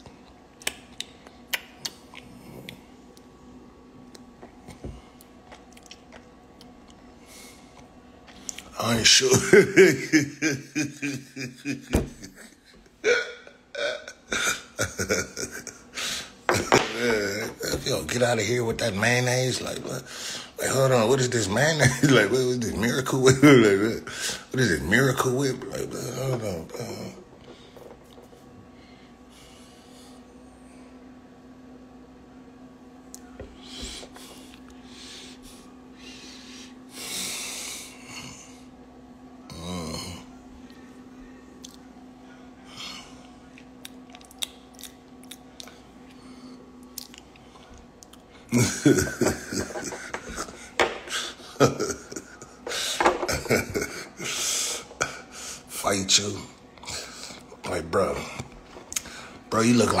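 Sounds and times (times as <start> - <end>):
person breathing: 15.9 - 16.4, 20.1 - 20.6, 33.6 - 38.6.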